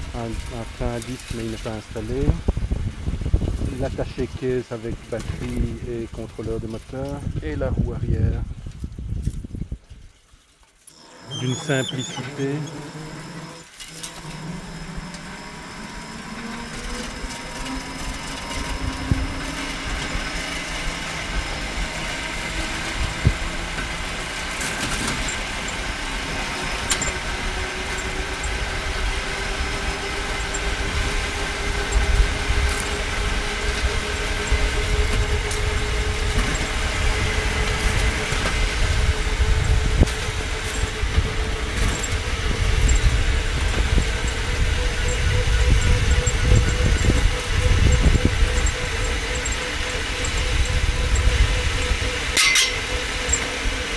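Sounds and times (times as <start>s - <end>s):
wheels rumbling on rails: 0.0s - 53.9s
electric motor whining: 10.9s - 53.9s.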